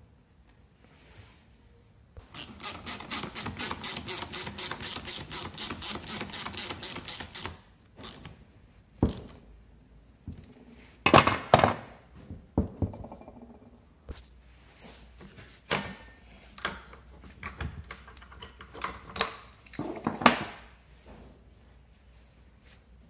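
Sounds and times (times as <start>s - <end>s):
ratchet clicking: 2.2s - 8.3s.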